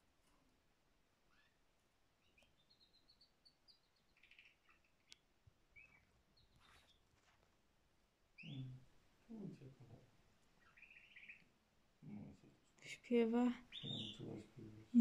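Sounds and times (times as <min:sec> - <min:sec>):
canary singing: 0:01.3 - 0:01.6, 0:02.2 - 0:07.0, 0:08.4 - 0:08.8, 0:10.6 - 0:11.5, 0:13.6 - 0:14.3.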